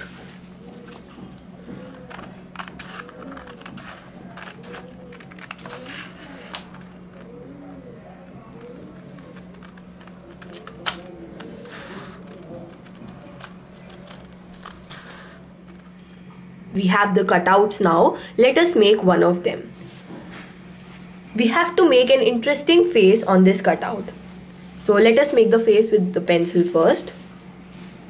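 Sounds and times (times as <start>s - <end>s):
paper rustling: 0.0s - 16.1s
steady low hum: 0.0s - 28.0s
scissors snipping paper: 0.9s - 16.2s.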